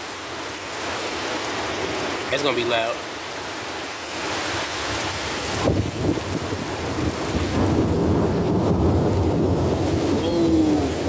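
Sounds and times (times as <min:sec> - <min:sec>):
steady rain: 0:00.0 - 0:11.0
thunder rumbling: 0:05.6 - 0:11.0.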